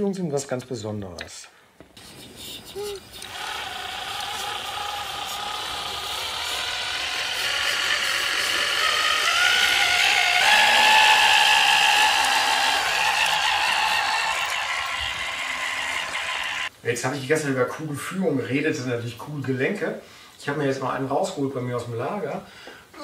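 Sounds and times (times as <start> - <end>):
electric motor and gearbox whining: 3.2 - 16.7.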